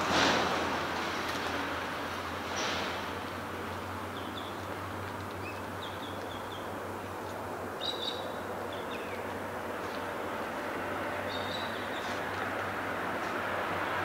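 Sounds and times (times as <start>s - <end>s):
rushing background hiss: 0.0s - 14.0s
small birds chirping: 4.0s - 10.1s, 11.2s - 12.6s.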